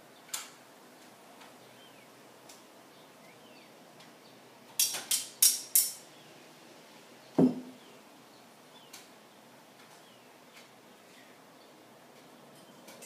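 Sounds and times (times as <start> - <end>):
heavy thud with low ring: 7.4 - 7.8.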